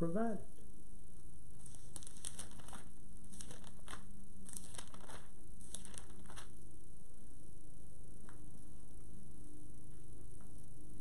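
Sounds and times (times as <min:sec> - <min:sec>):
steady low hum: 0:00.0 - 0:11.0
thin pages rustling: 0:01.6 - 0:06.6.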